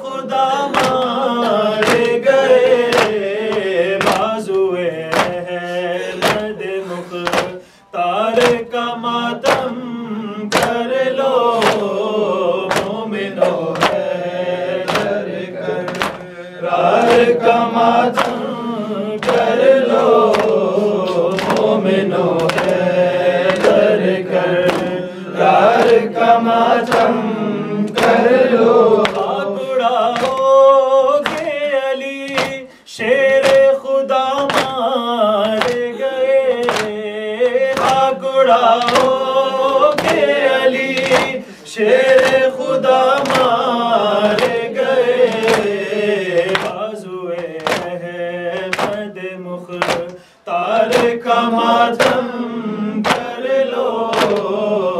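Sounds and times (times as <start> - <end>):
men chanting a lament: 0.0 - 54.9
hands striking chests: 1.8 - 2.2, 2.9 - 4.3, 5.1 - 5.4, 7.2 - 7.6, 10.5 - 10.8, 11.6 - 11.9, 12.7 - 14.1, 14.9 - 15.2, 15.9 - 16.3, 18.1 - 18.4, 20.2 - 21.8, 22.4 - 22.8, 23.4 - 23.9, 24.6 - 25.0, 31.2 - 31.5, 32.3 - 32.6, 34.4 - 34.8, 39.9 - 40.3, 40.9 - 41.4, 47.4 - 48.0, 48.6 - 49.0, 49.8 - 50.2, 53.0 - 53.3, 54.1 - 54.5.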